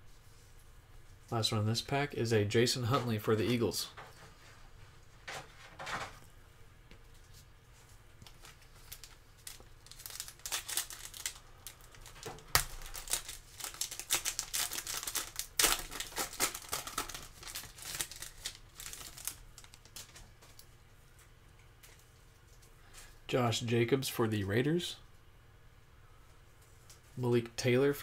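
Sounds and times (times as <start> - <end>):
foil wrapper tearing and crinkling: 8.3 - 20.6.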